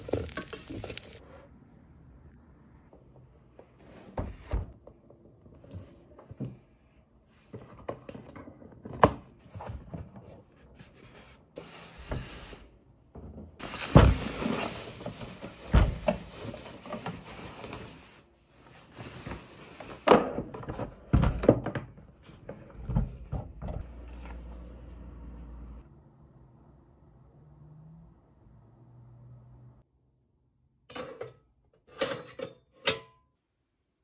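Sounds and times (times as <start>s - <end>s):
plastic wrapping rustling: 0.0s - 1.2s
boxes thunking on table: 20.1s - 23.8s.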